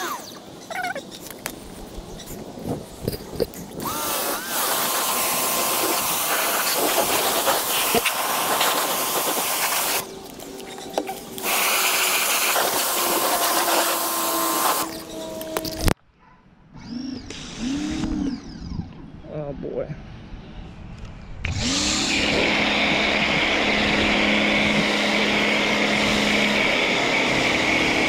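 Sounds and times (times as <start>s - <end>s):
pressure washer spraying water: 3.8s - 10.3s, 11.2s - 15.4s, 21.6s - 28.0s.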